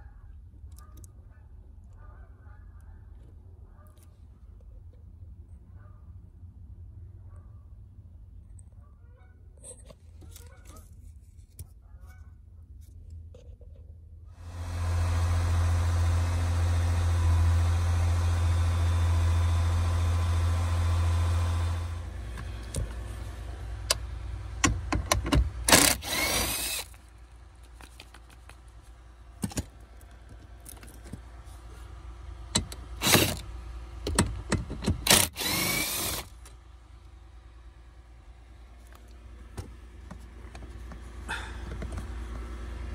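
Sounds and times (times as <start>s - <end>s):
machine hum with low drone: 12.7s - 42.9s
cordless power driver whirring: 14.4s - 23.2s, 25.6s - 27.0s, 32.6s - 33.5s, 34.3s - 36.5s.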